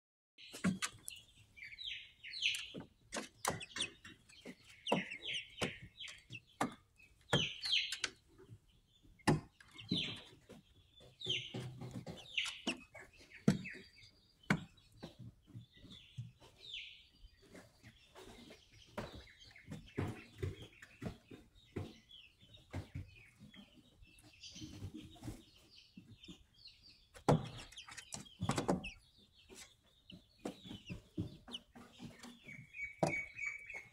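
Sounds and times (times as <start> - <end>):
beaks tapping on plastic floor: 0.4 - 33.9
chicks cheeping: 0.4 - 33.9.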